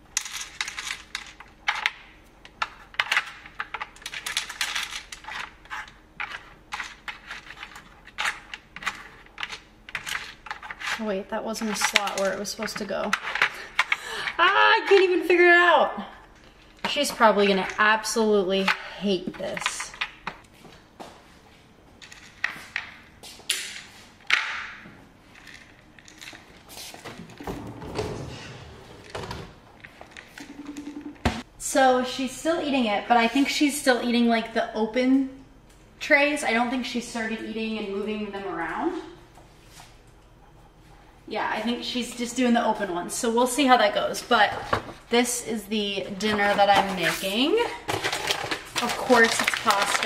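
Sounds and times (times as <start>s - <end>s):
pellets and plastic clicking: 46.4s - 50.0s.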